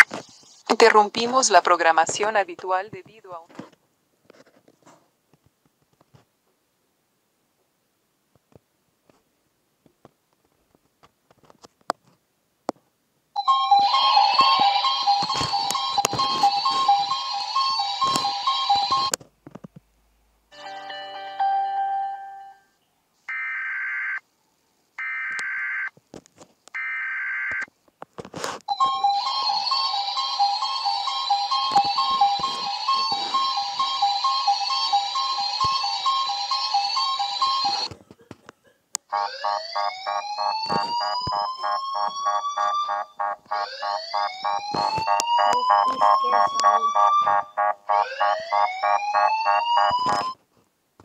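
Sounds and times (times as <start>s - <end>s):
siren gliding upward: 13.6s - 19.1s, 28.8s - 37.9s, 39.1s - 50.4s
buzzy digital data tones: 39.1s - 50.4s
fast beeps over rising tone: 39.1s - 50.4s.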